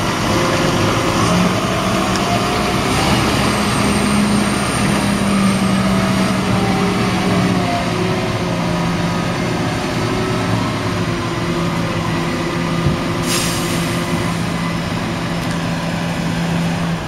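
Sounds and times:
tractor diesel engine running: 0.0 - 17.0
short hiss: 13.2 - 14.0.

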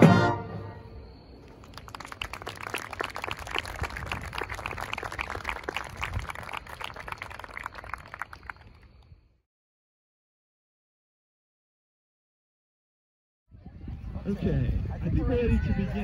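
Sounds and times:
marching band music: 0.0 - 0.9
audience applause: 1.4 - 9.0.

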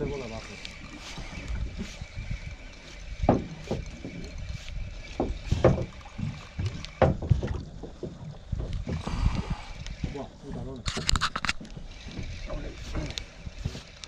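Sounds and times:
water slapping boat hull: 0.0 - 14.0
knocks on boat hull: 3.2 - 4.1, 5.2 - 9.1.

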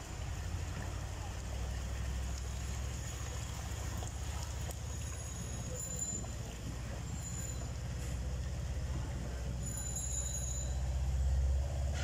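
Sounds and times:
hiss of water and rain: 0.0 - 9.8
low engine rumble: 0.0 - 12.0.

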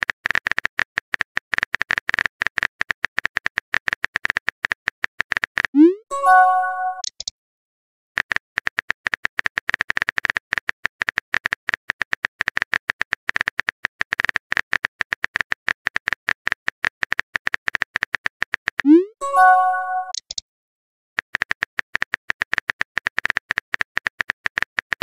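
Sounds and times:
multi-tone message chime: 5.8 - 7.0, 18.9 - 20.2.

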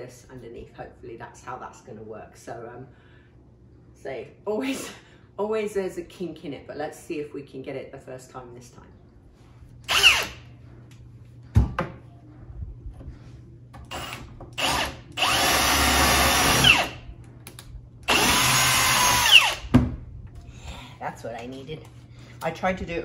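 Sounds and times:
power drill whining: 9.9 - 10.4, 13.9 - 17.0, 18.1 - 19.6.

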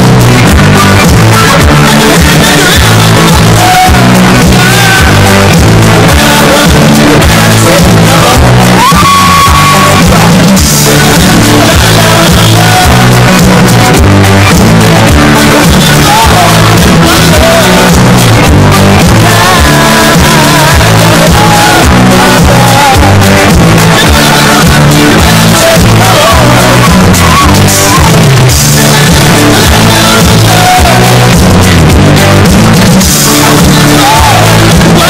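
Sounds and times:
distorted rock song: 0.0 - 35.0
loud bass line: 0.0 - 35.0
person singing: 0.0 - 35.0.

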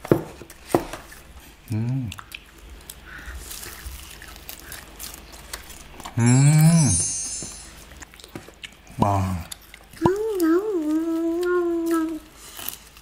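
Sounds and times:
crunchy chewing: 1.0 - 6.2, 7.9 - 13.0
man humming mmm: 1.7 - 2.2, 6.2 - 7.3
high twinkling sound effect: 6.2 - 8.0.

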